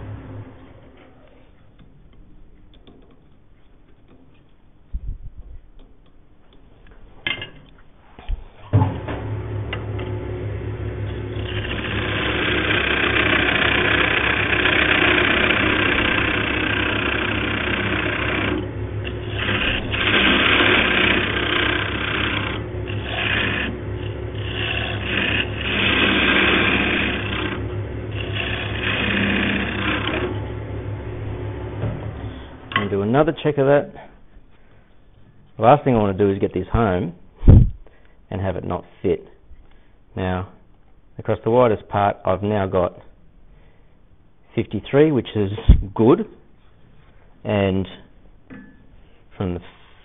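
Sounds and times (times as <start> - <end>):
wood lathe motor humming: 0.0 - 3.0, 8.8 - 33.0
turning tool cutting wood: 9.0 - 33.0.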